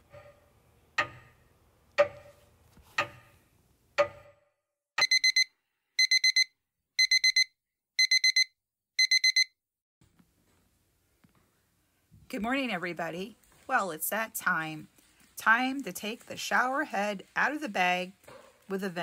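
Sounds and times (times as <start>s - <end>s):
clock ticking: 1.0s - 2.4s, 3.0s - 3.3s, 4.0s - 4.3s
digital alarm clock beeping: 5.0s - 9.6s.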